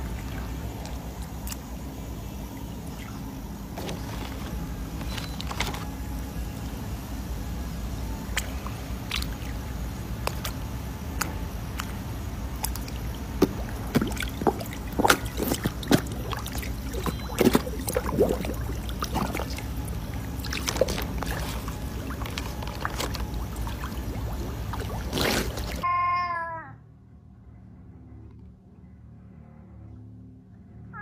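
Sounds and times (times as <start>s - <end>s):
fish splashing at water surface: 0.0s - 6.3s, 7.9s - 25.8s.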